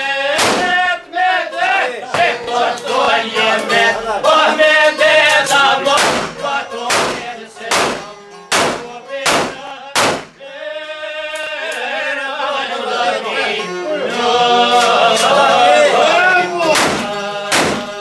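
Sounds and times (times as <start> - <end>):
men singing in unison: 0.0 - 18.0
sharp loud beats: 0.3 - 0.9, 5.9 - 10.4, 16.7 - 18.0.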